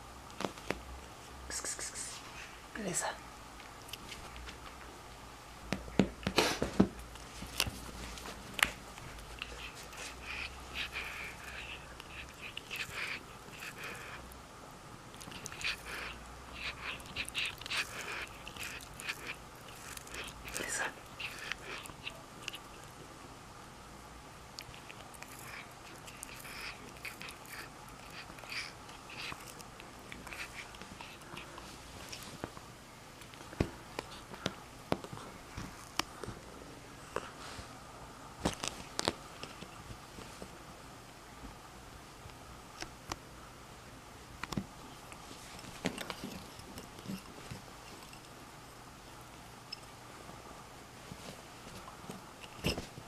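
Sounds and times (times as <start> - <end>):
kitten teeth gnawing on wood: 7.0 - 14.4, 15.1 - 23.0, 24.5 - 32.6, 33.2 - 36.3, 38.5 - 39.9, 44.4 - 48.3, 52.0 - 53.0.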